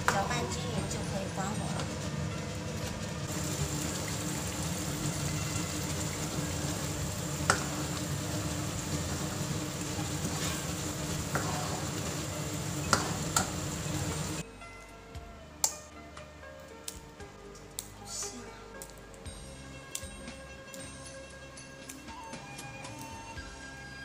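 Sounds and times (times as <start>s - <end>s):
sauce sizzling in hot oil: 0.1s - 14.4s.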